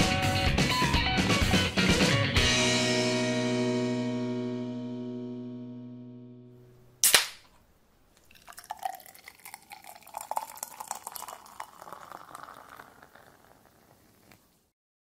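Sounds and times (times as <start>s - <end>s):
sharp crack: 7.0s - 8.3s
foam fizzing: 8.2s - 14.6s
beer pouring into glass: 8.2s - 14.7s.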